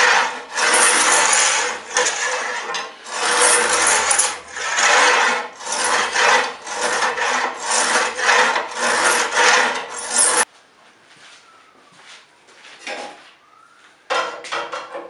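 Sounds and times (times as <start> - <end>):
hand tool scraping steel blade: 0.0 - 10.5.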